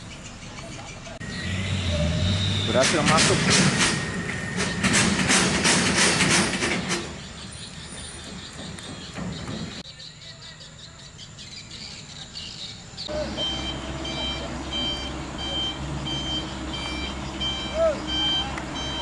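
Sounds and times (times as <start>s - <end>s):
birds chirping: 0.0s - 3.4s, 6.6s - 19.0s
truck engine running: 0.0s - 9.7s, 13.1s - 19.0s
reversing alarm beeping: 3.9s - 5.0s, 13.1s - 19.0s
insects chirping: 7.0s - 19.0s.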